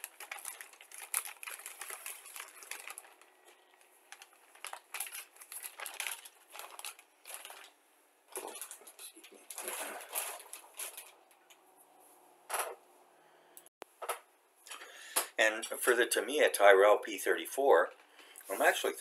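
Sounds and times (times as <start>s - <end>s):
plastic bag crinkling: 0.0s - 11.5s.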